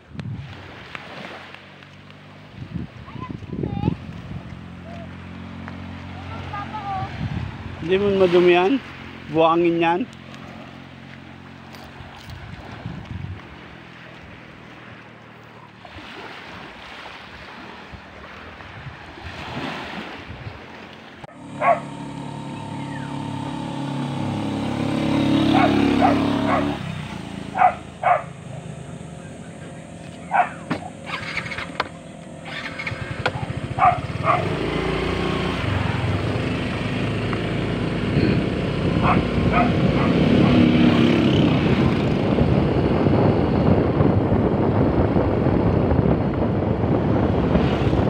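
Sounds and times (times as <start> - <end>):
road vehicle passing: 0.4 - 3.2, 3.8 - 48.0
dog barking: 21.6 - 22.0, 25.5 - 26.8, 27.5 - 28.4, 30.2 - 30.9, 33.8 - 34.6, 39.0 - 41.0.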